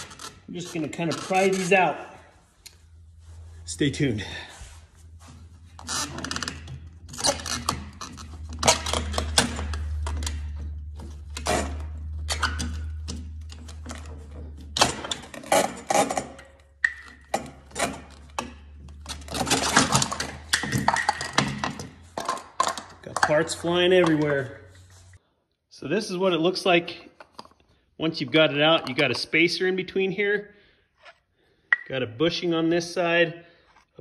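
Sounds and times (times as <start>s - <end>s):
metal parts clanking: 5.8s - 24.5s.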